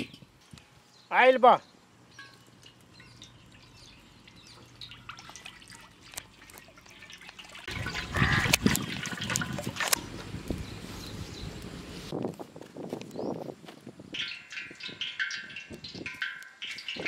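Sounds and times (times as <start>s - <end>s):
oil pouring into metal pan: 2.0s - 10.0s.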